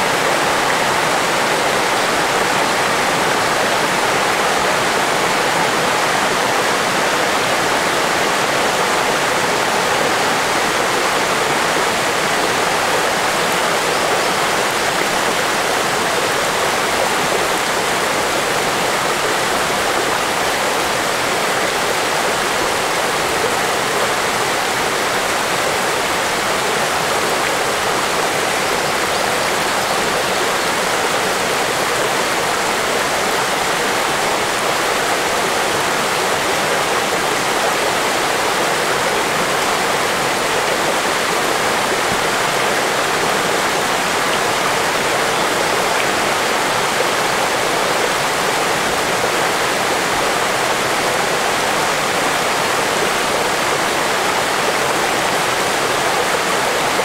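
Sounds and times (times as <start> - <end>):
river babbling over stones: 0.0 - 57.0.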